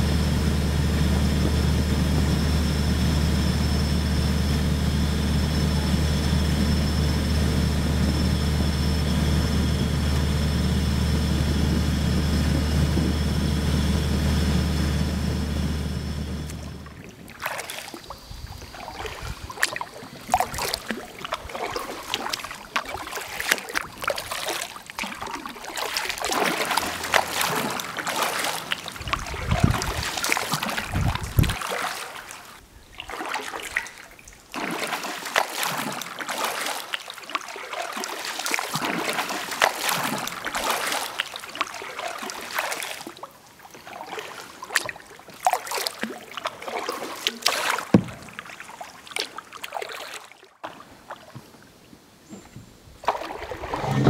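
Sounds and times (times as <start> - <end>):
paddle blades splashing: 0.0 - 54.0
water trickling off paddle: 16.2 - 54.0.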